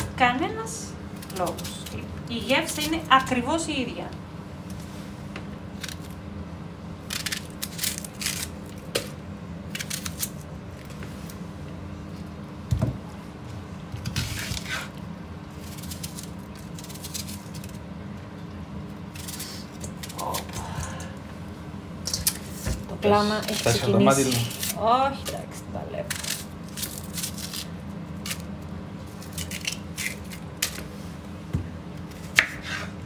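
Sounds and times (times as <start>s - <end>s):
knife slicing on cutting board: 32.3s - 33.0s.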